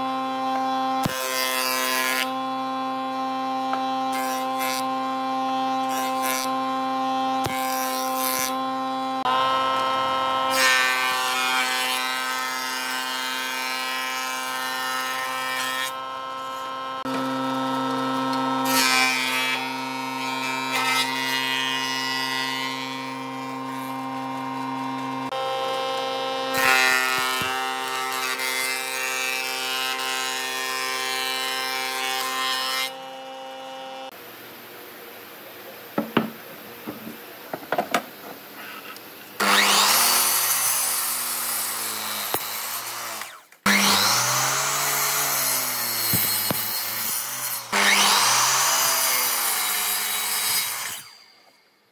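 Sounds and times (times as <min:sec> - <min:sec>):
thickness planer whine: 0:00.0 - 0:34.4, 0:36.0 - 0:51.6
sharp knocks: 0:36.0 - 0:38.1.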